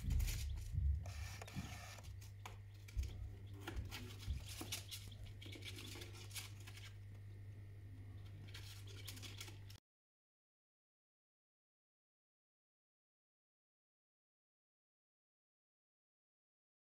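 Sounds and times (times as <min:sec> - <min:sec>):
faint scratching and clicking: 0:00.0 - 0:09.8
low hum: 0:00.0 - 0:09.8.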